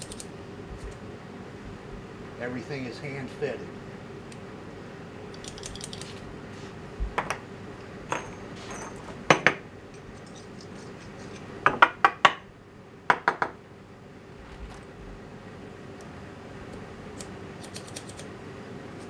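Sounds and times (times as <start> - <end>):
small metal parts clinking: 0.0 - 0.3, 5.3 - 6.2
steady hum: 0.0 - 19.0.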